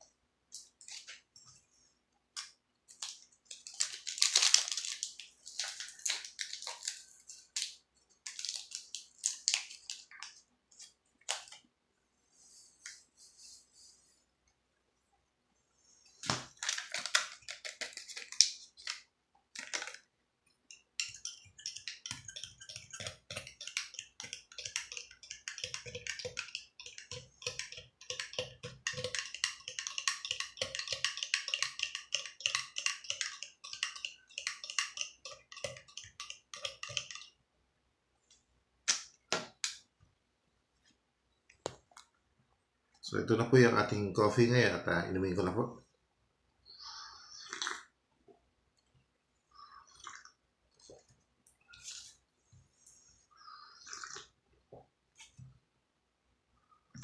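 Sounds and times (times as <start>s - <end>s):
powder poured into a mug: 3.0s - 10.4s, 16.5s - 20.1s, 20.7s - 37.4s
metal spoon clinking in a mug: 20.7s - 37.3s.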